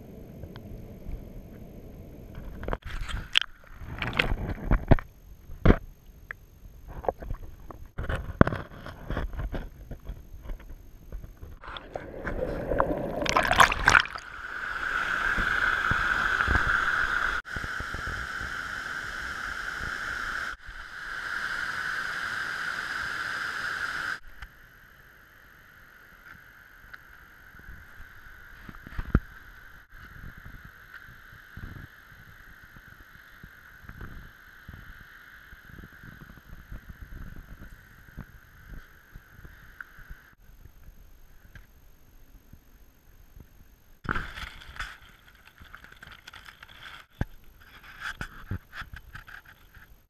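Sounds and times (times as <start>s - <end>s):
water sloshing and bubbling: 2.3s - 5.0s, 6.9s - 9.7s, 11.2s - 17.4s.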